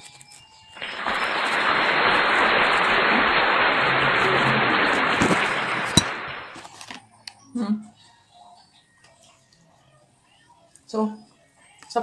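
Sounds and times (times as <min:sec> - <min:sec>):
crowd clapping: 0:00.8 - 0:06.6.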